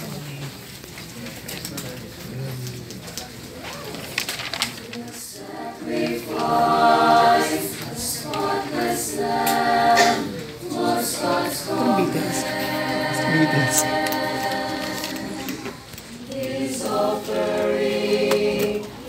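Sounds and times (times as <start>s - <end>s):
choir singing a hymn: 5.0s - 19.0s.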